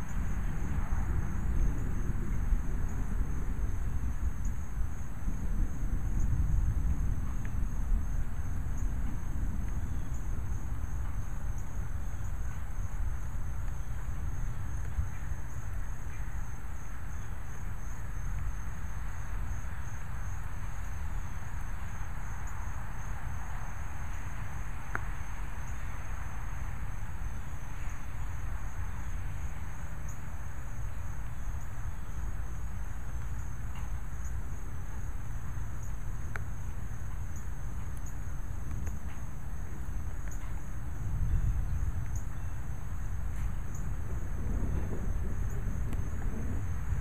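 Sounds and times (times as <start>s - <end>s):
insect chorus trilling: 0.0s - 47.0s
faint clicks: 37.8s - 39.2s.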